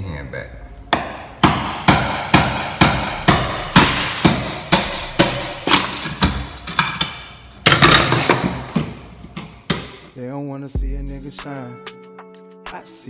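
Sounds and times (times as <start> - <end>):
hammer striking steel chisel: 0.9 - 10.1
music playing: 10.2 - 13.0.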